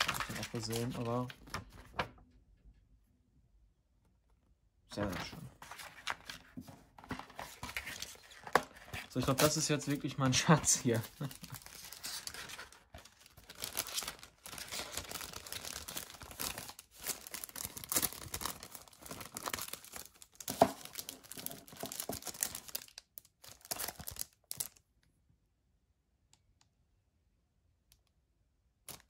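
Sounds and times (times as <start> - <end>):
plastic wrap crinkling and tearing: 0.0 - 1.7, 7.2 - 24.8.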